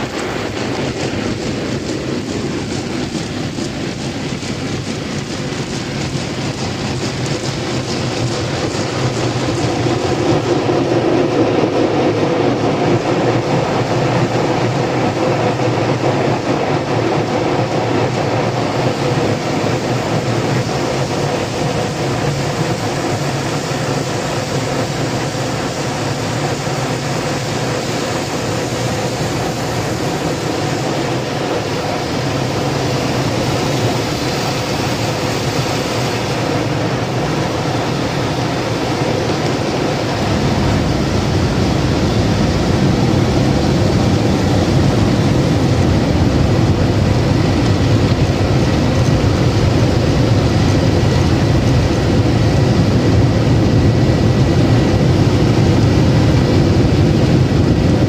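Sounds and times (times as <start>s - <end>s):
muffled car wash spray: 0.0s - 58.0s.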